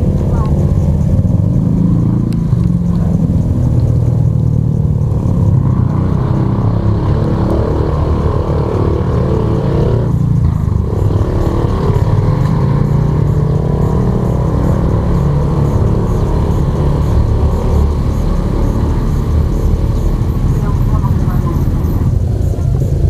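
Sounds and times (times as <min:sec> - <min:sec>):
vehicle engines running: 0:00.0 - 0:23.0.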